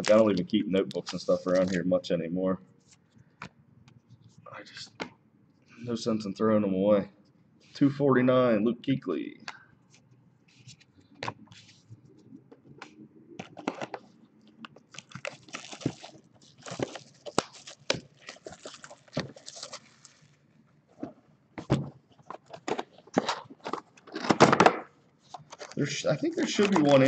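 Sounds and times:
foil wrapper crinkling: 0:00.0 - 0:01.8, 0:14.8 - 0:20.5.

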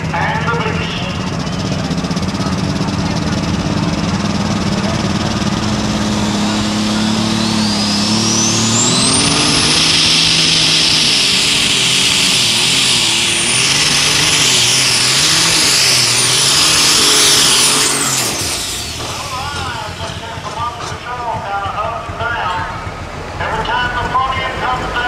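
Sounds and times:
tractor engine at full throttle: 0:00.0 - 0:25.0
high turbo whistle: 0:05.9 - 0:19.9.

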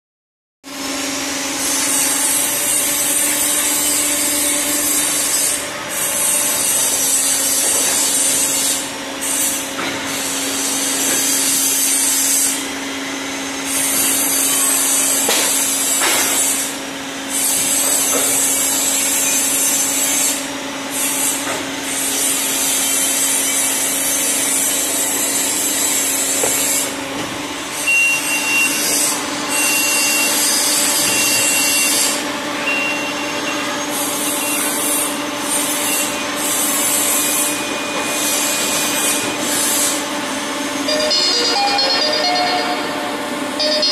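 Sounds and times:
short high beep: 0:27.8 - 0:28.8, 0:32.6 - 0:33.6, 0:40.8 - 0:43.9.

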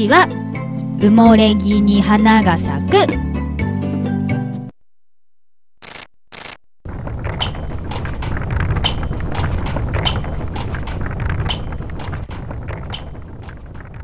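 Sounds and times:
scooter wheels rumbling: 0:06.9 - 0:14.0.

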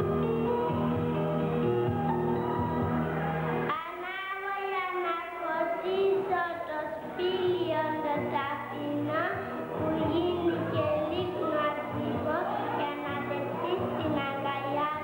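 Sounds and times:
girl singing into a microphone: 0:03.7 - 0:15.0.

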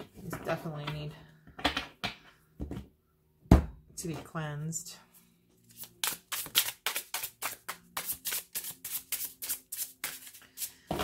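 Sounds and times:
cards being shuffled: 0:05.7 - 0:10.8.

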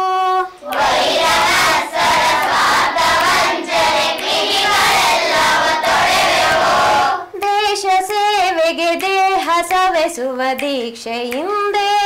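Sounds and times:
children singing in chorus: 0:00.6 - 0:07.4.

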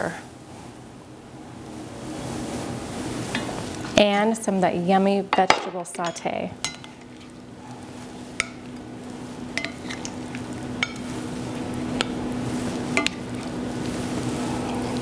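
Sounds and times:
vegetables sizzling in a pan: 0:06.5 - 0:15.0
spatula scraping a pan: 0:09.6 - 0:10.3.

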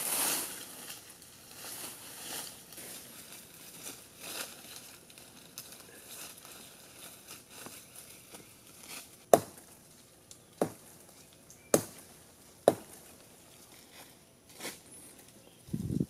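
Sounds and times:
blade chopping into wood: 0:09.3 - 0:09.6.

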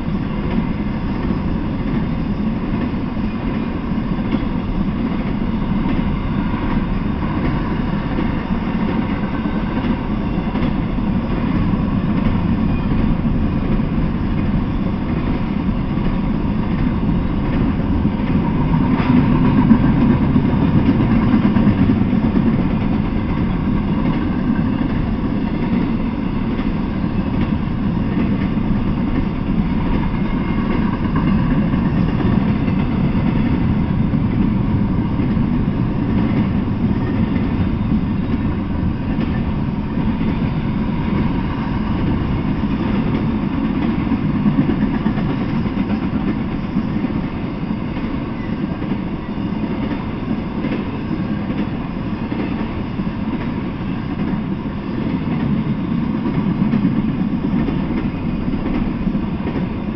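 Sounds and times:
freight train cars rolling: 0:00.0 - 0:59.9.

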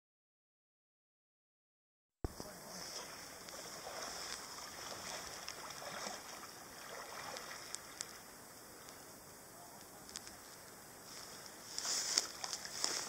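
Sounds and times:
kayak paddling water: 0:02.3 - 0:13.0
steady hiss: 0:02.3 - 0:13.0
small clicks: 0:09.8 - 0:10.4.

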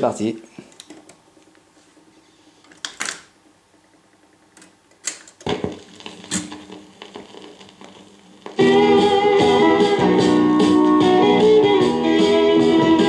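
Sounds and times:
stylus crackle: 0:00.6 - 0:08.6
record changer clicks and clunks: 0:02.7 - 0:08.6
music from speakers: 0:05.5 - 0:13.0.

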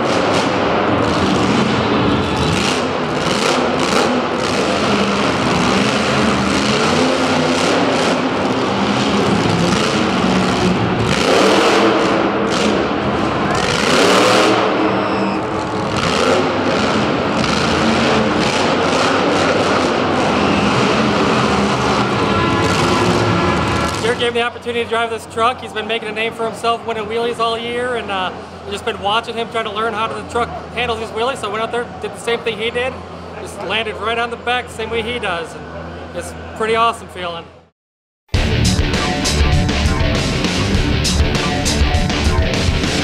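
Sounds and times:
monster truck engine revving: 0:00.0 - 0:26.1, 0:38.4 - 0:43.0.

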